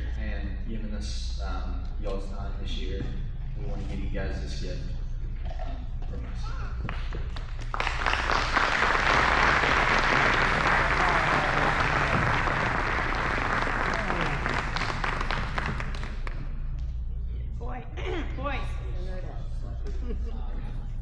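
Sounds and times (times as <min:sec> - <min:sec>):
audience applauding: 0:06.8 - 0:16.5.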